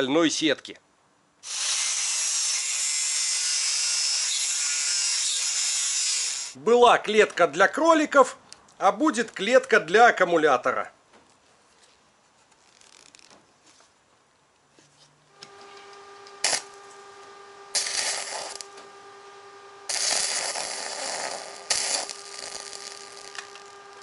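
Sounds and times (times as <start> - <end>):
steady hum: 15.2 - 24.0
welding arc crackling: 15.4 - 24.0.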